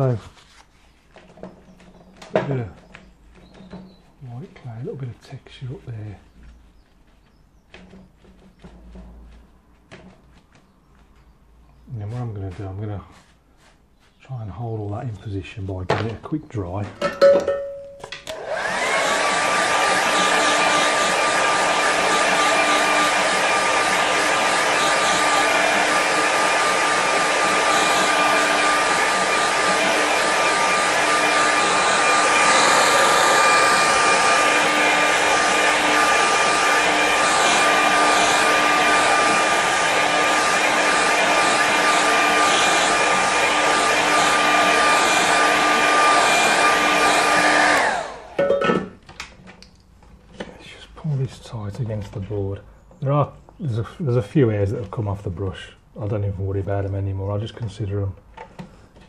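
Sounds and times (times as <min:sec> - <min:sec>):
hair dryer running: 0:18.0 - 0:48.9.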